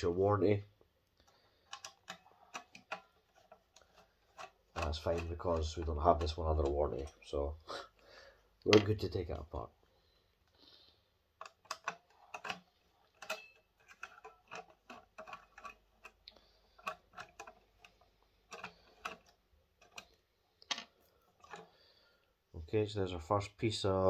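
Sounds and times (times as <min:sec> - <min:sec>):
screwdriver clicks and taps: 0:04.3 - 0:05.3, 0:11.4 - 0:12.6, 0:13.2 - 0:16.2, 0:16.8 - 0:20.8.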